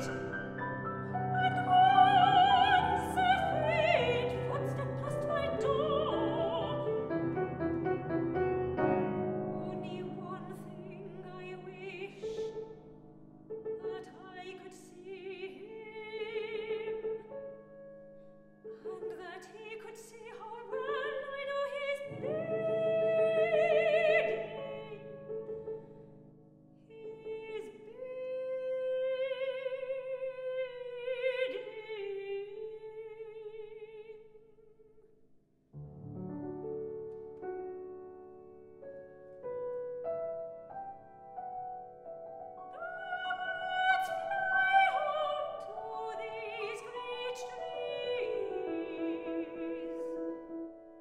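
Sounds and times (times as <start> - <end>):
soprano singing opera: 0.0 - 0.4, 1.0 - 8.2, 9.5 - 12.7, 13.8 - 17.3, 18.7 - 26.0, 26.9 - 34.3, 42.7 - 51.0
piano accompaniment: 0.0 - 19.4, 35.8 - 51.0.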